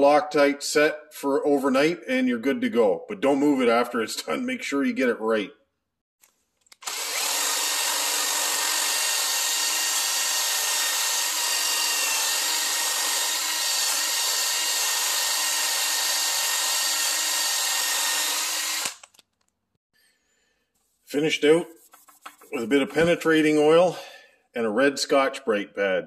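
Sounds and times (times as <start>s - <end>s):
impact driver motor whine: 6.8s - 19.2s.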